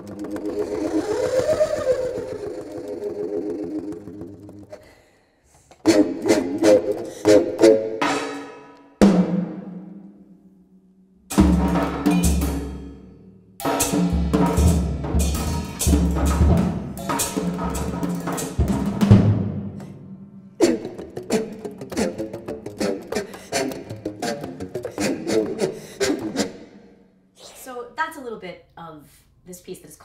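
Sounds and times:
contrabass flute low tones: 0:00.2 - 0:04.6
drums and cymbals: 0:11.3 - 0:13.0, 0:13.6 - 0:20.0.

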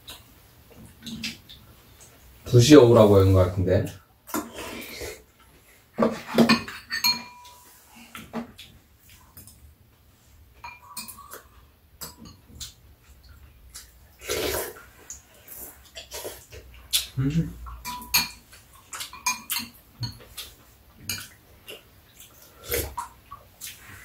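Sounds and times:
utensils clinking on bowls: 0:06.2 - 0:07.7, 0:10.6 - 0:12.5, 0:17.7 - 0:20.5
eating noises: 0:12.5 - 0:17.8, 0:18.4 - 0:24.0.

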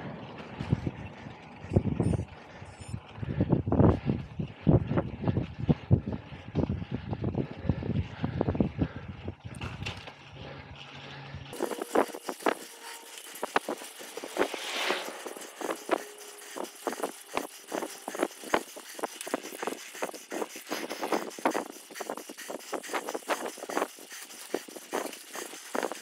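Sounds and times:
bicycle clicks and rattles: 0:00.0 - 0:26.0
steady hiss: 0:11.6 - 0:26.0.

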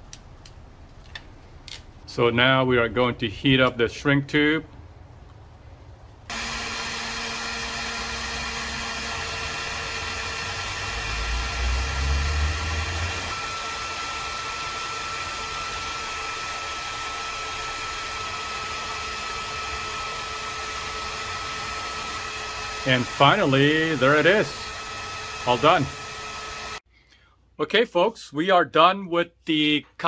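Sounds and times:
heat gun blowing: 0:06.3 - 0:26.9.

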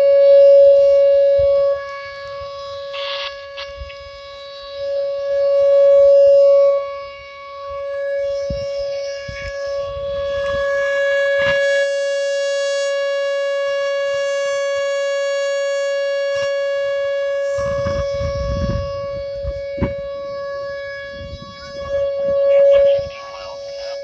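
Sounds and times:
warning siren steady tone: 0:00.0 - 0:24.0
low rumble: 0:17.6 - 0:20.2.

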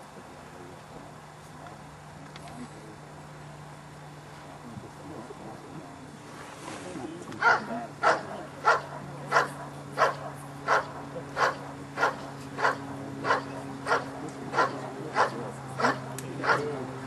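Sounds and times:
dog barking: 0:07.4 - 0:16.7.

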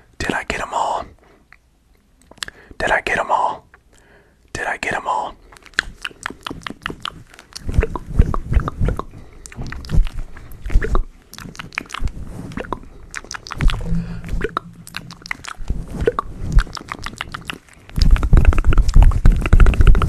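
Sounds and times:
hands rubbing microphone windscreen: 0:13.4 - 0:17.1, 0:18.0 - 0:20.0.

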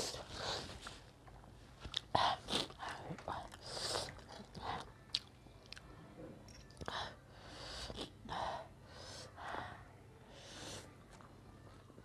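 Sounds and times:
slurping and chewing noodles: 0:01.9 - 0:05.8
breathing: 0:07.3 - 0:10.9.

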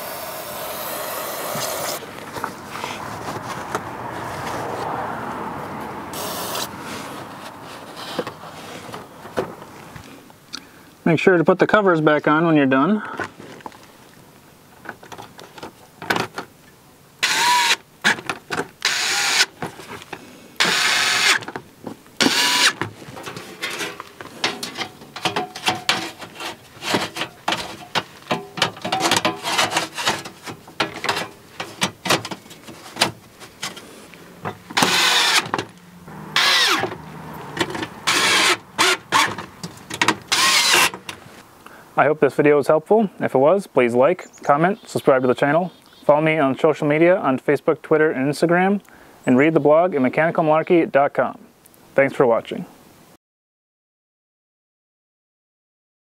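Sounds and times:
plastic panel scraping and rattling: 0:22.2 - 0:35.7.

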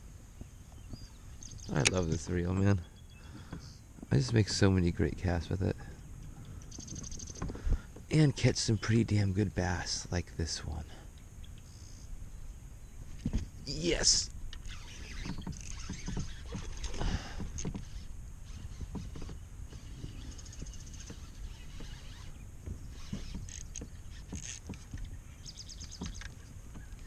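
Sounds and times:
knocks and rustles on kayak: 0:00.3 - 0:02.6, 0:03.2 - 0:05.2, 0:06.3 - 0:08.7, 0:13.0 - 0:13.6, 0:14.4 - 0:27.0.

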